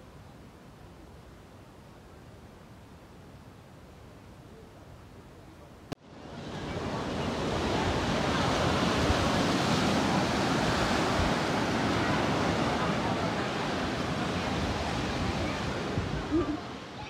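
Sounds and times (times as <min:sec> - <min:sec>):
waves breaking on a beach: 0:06.0 - 0:17.0.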